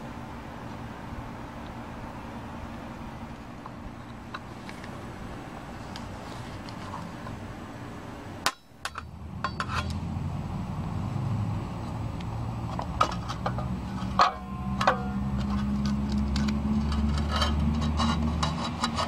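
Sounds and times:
low steady hum: 0:00.0 - 0:19.0
metal reel clinks: 0:08.5 - 0:10.0.

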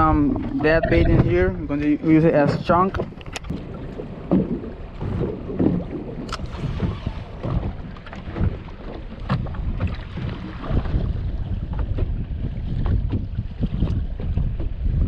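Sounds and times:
low thumps: 0:00.0 - 0:08.7
water slapping boat hull: 0:00.0 - 0:15.0
wind buffeting microphone: 0:00.0 - 0:15.0.

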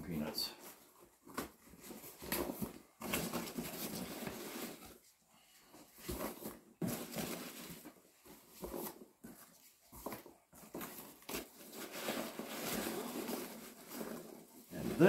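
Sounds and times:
packing peanuts rustling in a box: 0:10.7 - 0:15.0.

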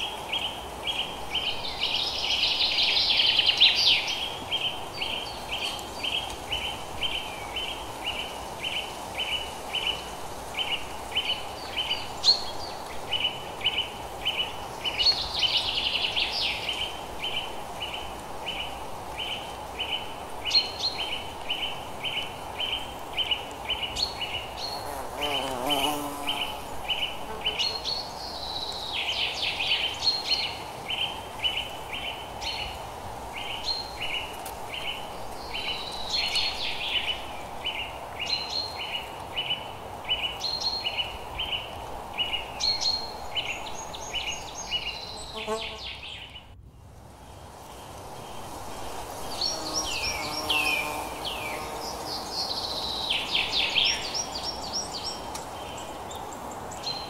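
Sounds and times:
birds singing and calling: 0:47.7 - 0:57.0.

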